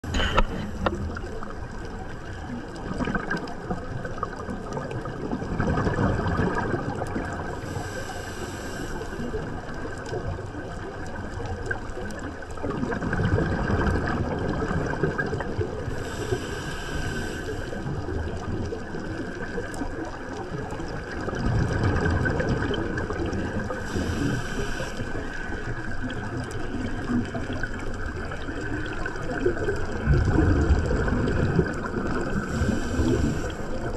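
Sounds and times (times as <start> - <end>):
scuba regulator breathing: 0.0 - 1.2, 7.6 - 9.4, 15.9 - 18.0, 23.6 - 25.8, 31.8 - 33.9
underwater water noise: 0.0 - 33.9.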